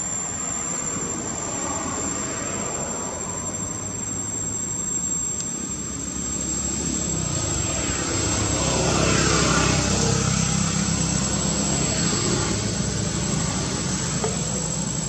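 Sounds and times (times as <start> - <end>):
motor engine running: 3.4 - 15.0.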